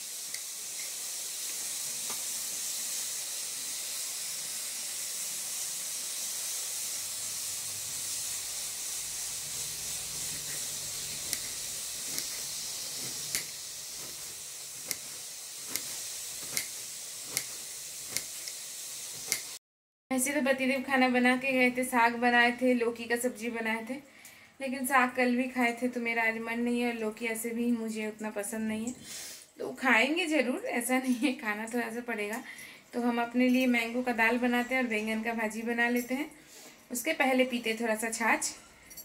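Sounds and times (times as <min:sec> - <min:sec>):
steady hiss: 0:00.0 - 0:19.6.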